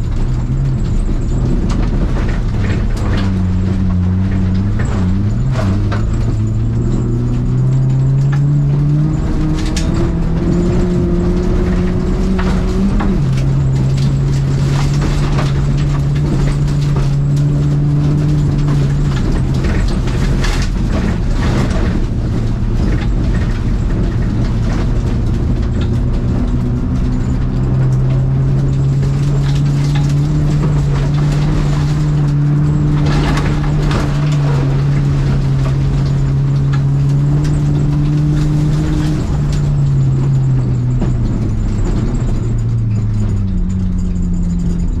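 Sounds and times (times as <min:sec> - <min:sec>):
car engine heard from inside cabin: 0:00.0 - 0:45.0.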